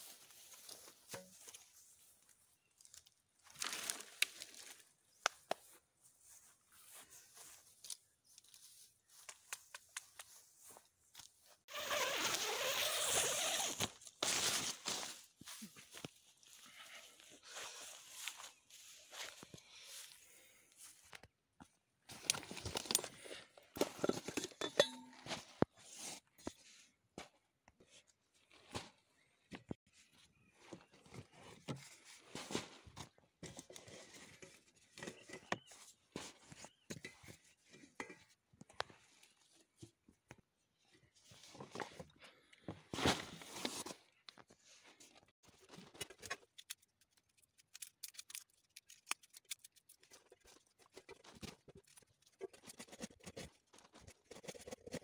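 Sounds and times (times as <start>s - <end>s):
steel plates and pots clinking: 23.9s - 25.3s.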